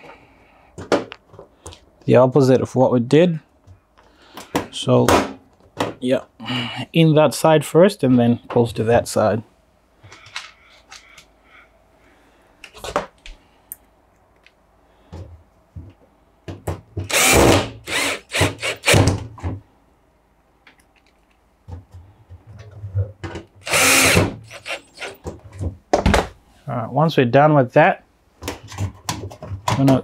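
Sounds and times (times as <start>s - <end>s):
cordless drill running: 17.1s - 19.0s, 23.6s - 25.2s.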